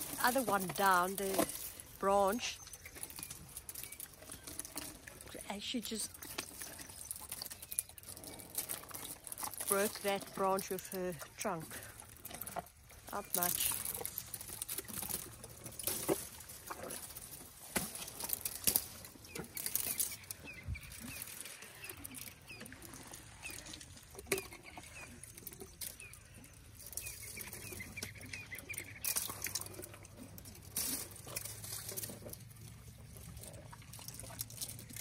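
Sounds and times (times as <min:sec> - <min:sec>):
branches rustling: 0:00.0 - 0:24.1, 0:24.7 - 0:35.0
elephants chewing branches: 0:00.0 - 0:35.0
twigs cracking: 0:12.0 - 0:22.4.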